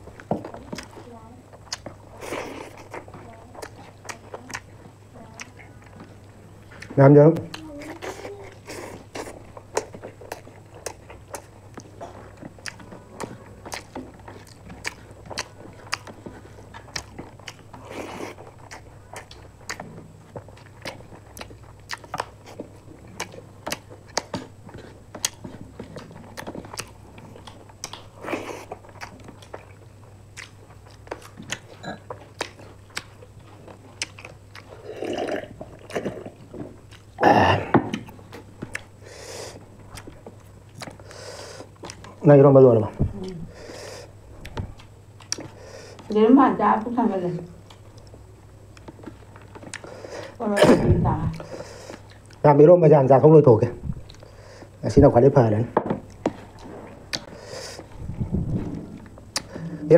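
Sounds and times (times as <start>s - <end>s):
people chewing and biting: 0.0s - 46.1s, 47.6s - 50.4s, 51.3s - 52.4s, 53.8s - 54.8s, 55.8s - 59.8s.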